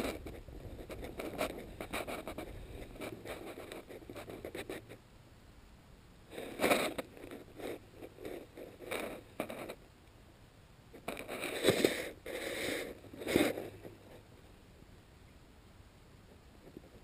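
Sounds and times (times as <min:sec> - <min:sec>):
close rustling and scraping: 0:00.0 - 0:05.0, 0:06.3 - 0:09.8, 0:10.9 - 0:14.4, 0:16.2 - 0:17.0.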